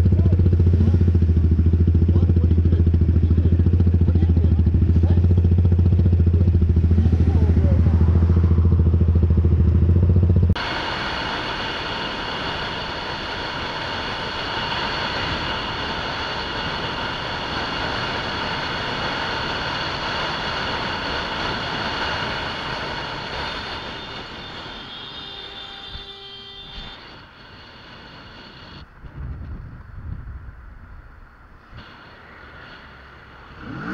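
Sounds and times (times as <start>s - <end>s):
motorcycle engine idling: 0.0s - 10.6s
motorcycle riding at speed: 0.0s - 33.9s
wind noise: 6.3s - 24.8s, 25.8s - 33.9s.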